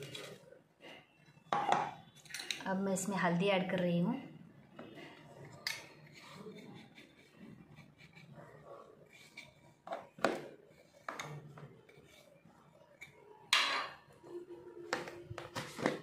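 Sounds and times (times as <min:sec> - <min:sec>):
steel bowl and spoon clinking: 0:05.4 - 0:07.3.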